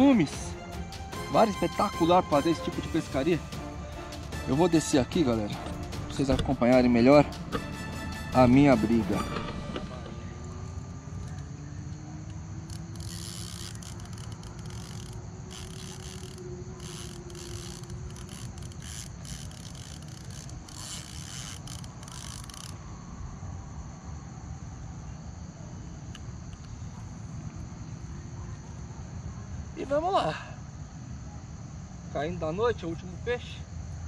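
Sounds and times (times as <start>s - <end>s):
insect chorus: 0.0s - 34.0s
scraping and rasping: 12.6s - 22.7s.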